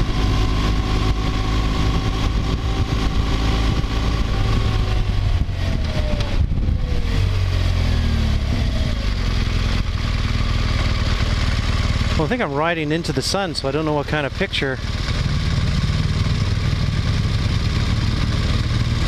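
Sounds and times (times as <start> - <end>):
wind rumble on microphone: 0.0 - 10.6
motorcycle engine running: 0.0 - 19.0.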